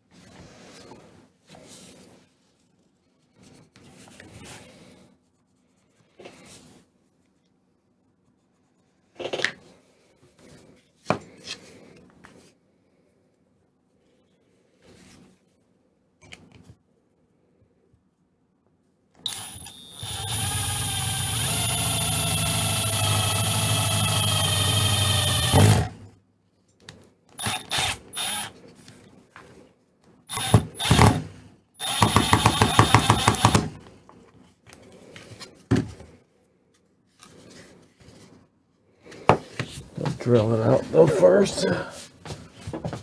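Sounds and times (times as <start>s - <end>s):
cordless drill running: 19.3s - 26.0s, 27.4s - 28.6s, 30.3s - 33.8s.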